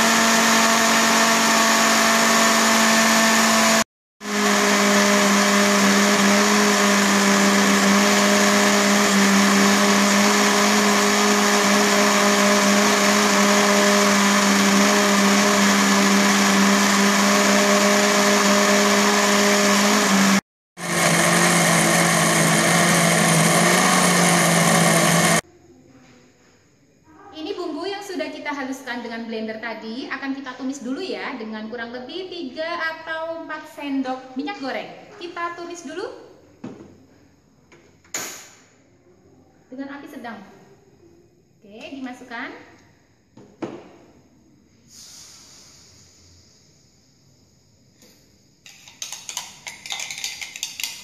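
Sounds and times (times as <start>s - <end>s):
electric blender motor grinding: 0.0s - 25.4s.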